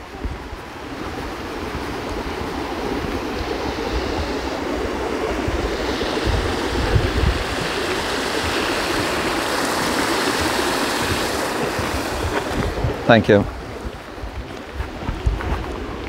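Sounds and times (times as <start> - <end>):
wind rumble on microphone: 0.0 - 16.0
stream splashing over stones: 6.2 - 14.8.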